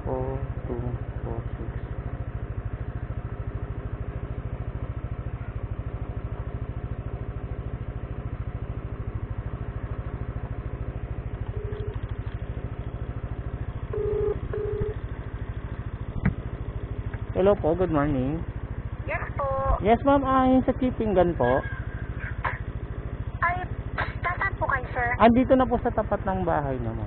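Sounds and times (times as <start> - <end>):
scooter engine idling: 0.0 - 27.0
phone beeps: 11.5 - 12.0, 13.9 - 15.0.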